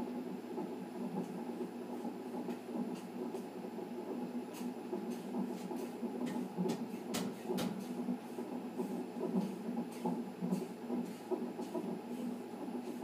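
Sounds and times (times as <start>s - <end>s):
fetal heartbeat doppler whoosh: 0.6s - 13.0s.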